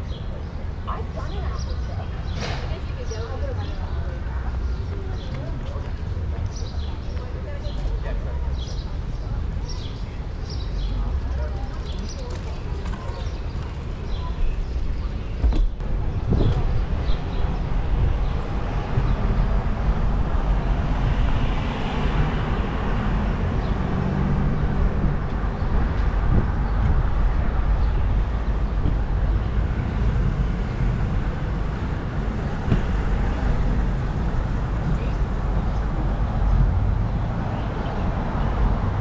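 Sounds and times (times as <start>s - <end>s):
bicycle rolling noise: 8.2s - 15.2s
wind rumble on microphone: 8.8s - 39.0s.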